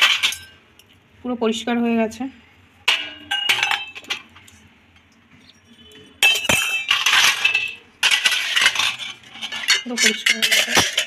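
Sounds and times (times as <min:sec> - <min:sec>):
metal utensils clinking and scraping: 0:00.0 - 0:00.6, 0:02.9 - 0:04.7, 0:05.5 - 0:11.0.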